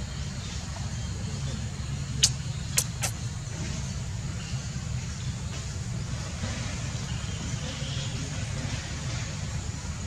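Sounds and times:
steady low rumble: 0.0 - 10.0
sharp clicks: 2.2 - 3.2.

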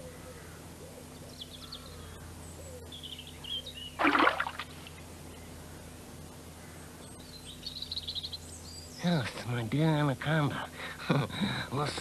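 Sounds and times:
loud water splash: 4.0 - 4.8.

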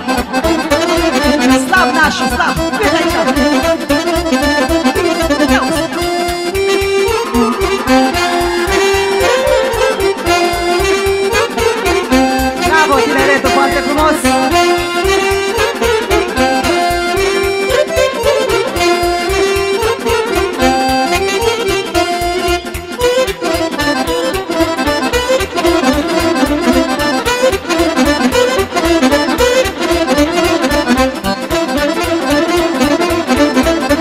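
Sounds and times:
accordion melody: 0.0 - 34.0
fast bass beat: 4.5 - 11.2.

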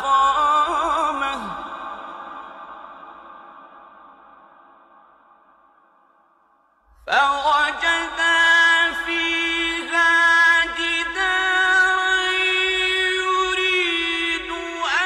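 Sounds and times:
man chanting recitation: 0.0 - 2.5, 7.1 - 15.0
echo: 0.0 - 15.0.

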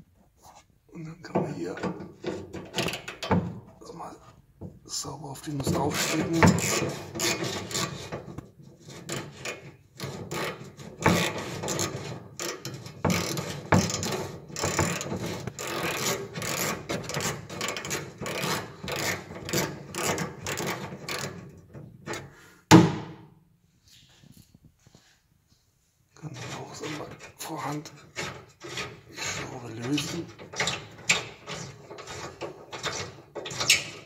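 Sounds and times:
loud knock: 22.7 - 23.3.

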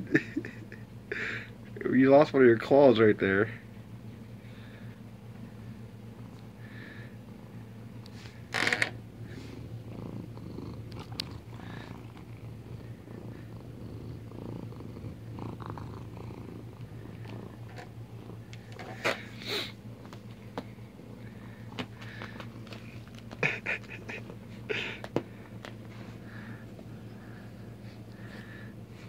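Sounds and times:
cat purring: 9.2 - 19.7.

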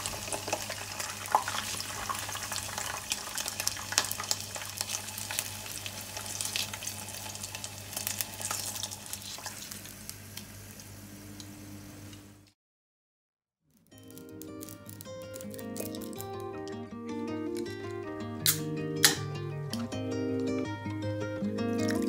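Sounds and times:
food deep-frying in hot oil: 0.0 - 12.4
oil crackles and pops: 0.0 - 12.5, 13.7 - 16.8, 21.8 - 22.0.

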